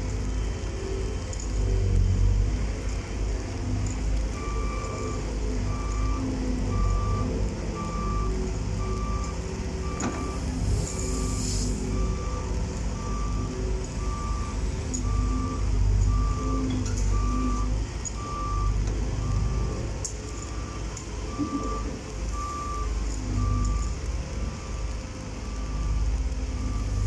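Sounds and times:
diesel excavator engine running: 0.0 - 27.0
backup alarm beeping: 4.4 - 26.0, 26.6 - 27.0
short hiss: 10.4 - 11.9.

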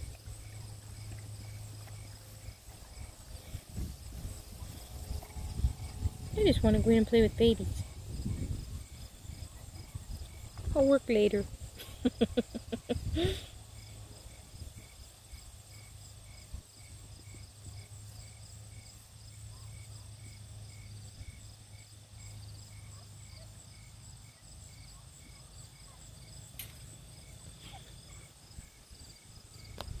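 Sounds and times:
low steady hum: 0.0 - 23.1
continuous insect trill: 0.0 - 30.0
insects chirping: 0.0 - 30.0.

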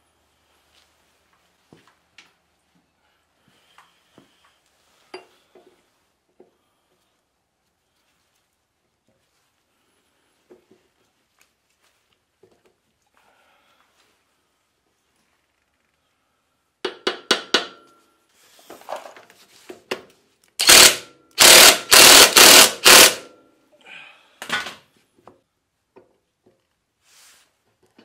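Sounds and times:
impact wrench bursts: 20.6 - 23.4.

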